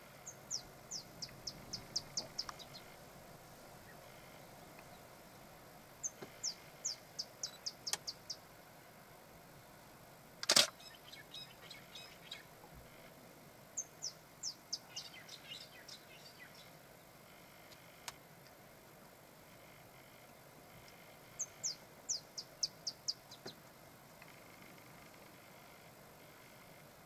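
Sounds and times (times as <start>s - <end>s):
loud sharp click: 10.4s - 10.8s.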